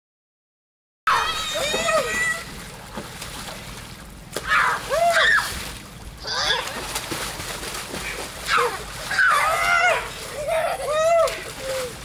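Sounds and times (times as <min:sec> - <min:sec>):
children shouting: 0:01.1 - 0:02.5, 0:04.4 - 0:05.6, 0:08.4 - 0:11.8
water splashing in a pool: 0:01.1 - 0:12.0.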